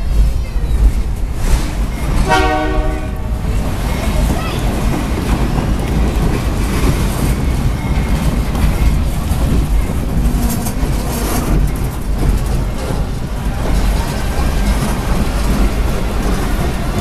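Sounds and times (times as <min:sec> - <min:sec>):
train wheels rumbling on rails: 0:00.0 - 0:17.0
wheels clicking: 0:03.2 - 0:17.0.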